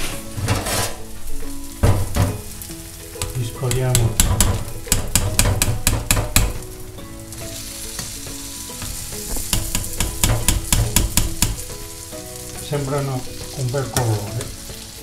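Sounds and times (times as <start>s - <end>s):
metal skimmer scraping steel pot: 0.0s - 1.1s.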